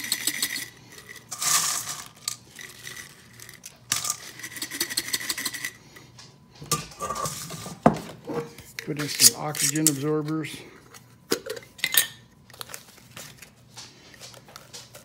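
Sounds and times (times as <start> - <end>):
banana chips rattling against glass: 0.0 - 5.8.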